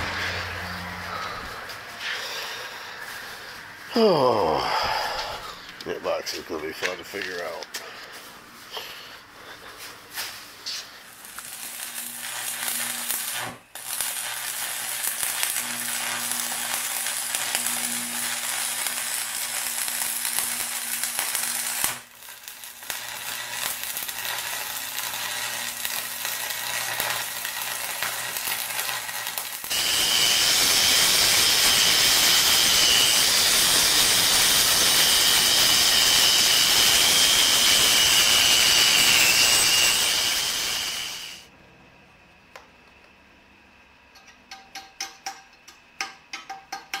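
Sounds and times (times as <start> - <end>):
arc welding crackling sizzle: 5.2 - 8.7, 9.7 - 41.5
angle grinder whining: 10.7 - 41.5.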